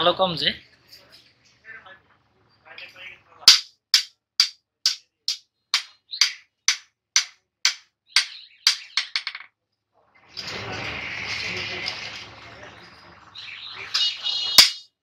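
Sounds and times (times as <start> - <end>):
hammer striking steel on anvil: 3.5 - 9.1, 14.6 - 14.9.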